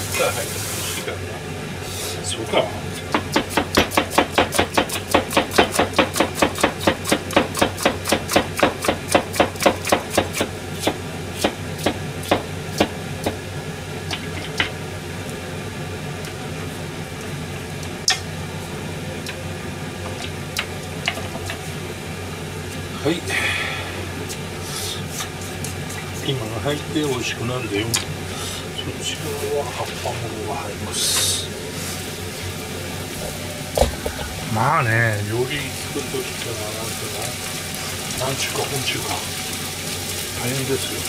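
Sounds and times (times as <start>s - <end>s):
cleaver chopping vegetables: 3.1s - 13.4s.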